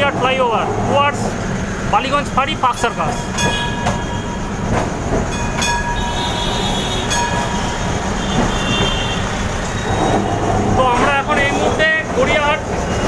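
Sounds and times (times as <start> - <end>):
tram rumbling: 0.0 - 13.0
wheel squeal: 5.2 - 13.0
wheels knocking over rail joints: 7.0 - 13.0.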